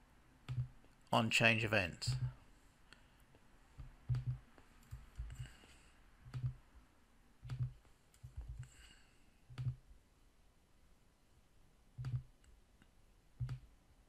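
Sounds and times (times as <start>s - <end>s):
mouse and keyboard clicks: 0.5s - 0.7s, 4.1s - 5.4s, 6.3s - 6.6s, 9.5s - 9.8s, 12.0s - 12.3s, 13.4s - 13.6s.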